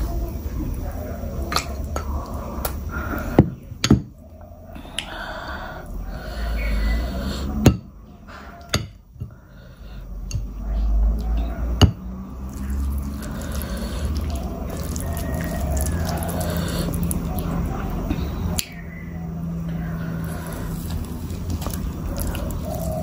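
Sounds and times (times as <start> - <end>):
fingers squishing food: 12.4 - 18.8, 20.2 - 23.0.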